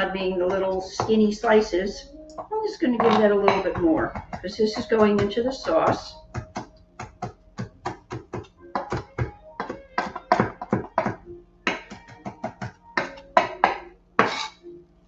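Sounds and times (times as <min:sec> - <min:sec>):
knife chopping on wooden board: 0:03.0 - 0:14.5.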